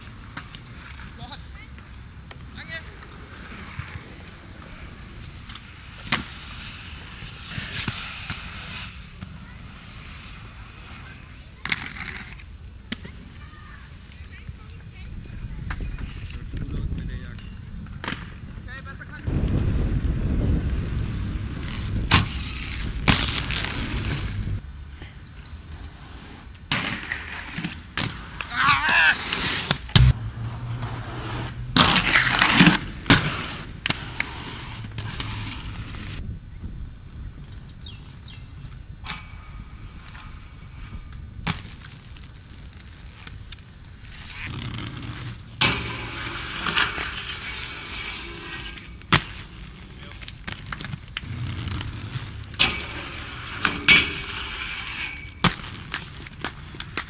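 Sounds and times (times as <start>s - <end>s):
skate wheels rolling: 0.0s - 57.0s.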